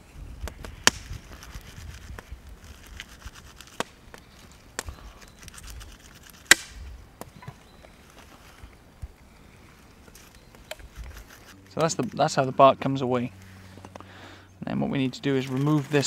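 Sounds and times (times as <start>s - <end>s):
bark cracking and snapping: 0.4s - 4.9s.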